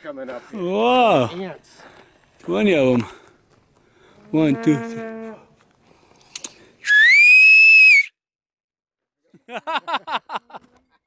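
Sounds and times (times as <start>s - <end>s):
shrill whistle sliding up: 6.8s - 8.2s.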